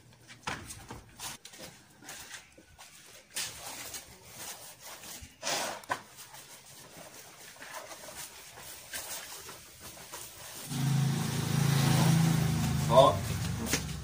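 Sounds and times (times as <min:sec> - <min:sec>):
paint roller swishing: 0:06.3 - 0:14.0.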